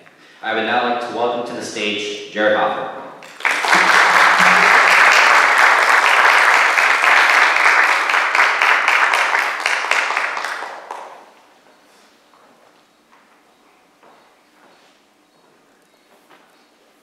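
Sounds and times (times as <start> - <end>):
applause: 3.2 - 11.3.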